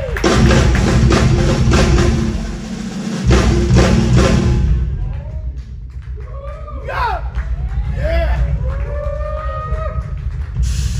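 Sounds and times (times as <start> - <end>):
heavy bass drum: 0.0 - 10.9
drum kit solo: 0.1 - 5.6.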